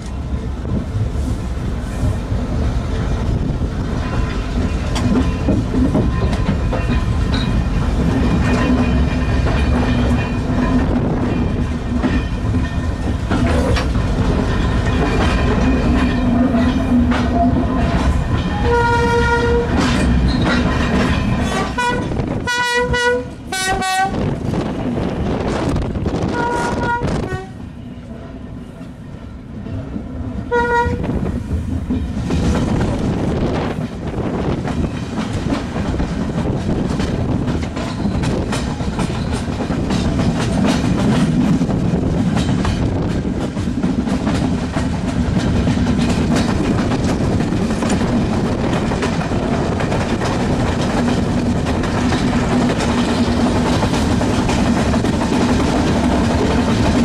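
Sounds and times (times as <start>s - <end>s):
train rumble inside carriage: 0.0s - 57.0s
wheels clicking over rail joints: 2.1s - 23.5s, 30.7s - 57.0s
train horn blasts: 18.5s - 19.8s, 21.5s - 24.3s, 26.2s - 27.6s, 30.5s - 31.1s.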